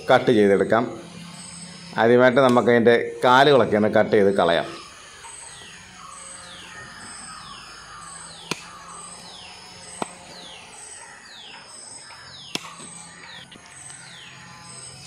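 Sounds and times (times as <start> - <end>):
high falling chirps: 0.0 - 15.0
machete chopping into wooden block: 8.5 - 8.7, 10.0 - 10.2, 12.5 - 13.0.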